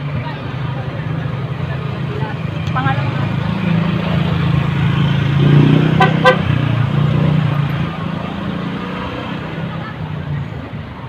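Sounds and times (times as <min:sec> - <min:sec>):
engine humming in traffic: 0:00.0 - 0:11.0
vehicle horn toots: 0:06.0 - 0:06.5.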